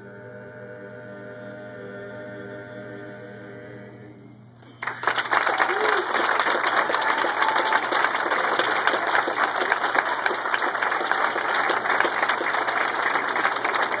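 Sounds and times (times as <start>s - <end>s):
audience applauding: 4.8s - 14.0s.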